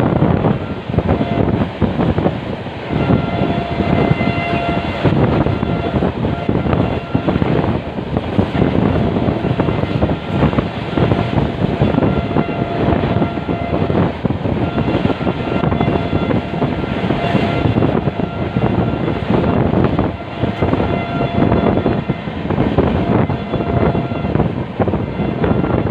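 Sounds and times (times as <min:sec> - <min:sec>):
train wheels rumbling on rails: 0:00.0 - 0:25.9
wind buffeting microphone: 0:00.0 - 0:25.9.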